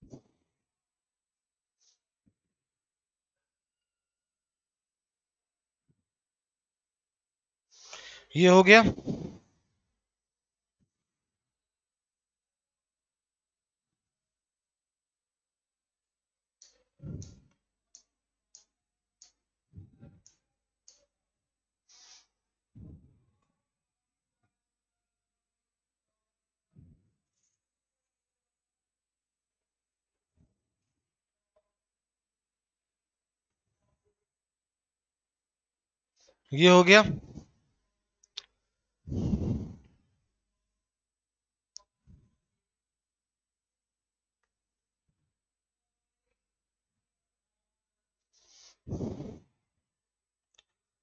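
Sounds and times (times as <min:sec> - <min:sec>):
short hiss: 0:21.9 - 0:22.3.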